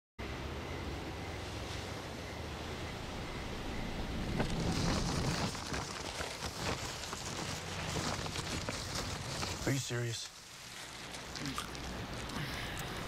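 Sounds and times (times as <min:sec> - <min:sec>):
paper wrappers rustling: 0:04.4 - 0:13.0.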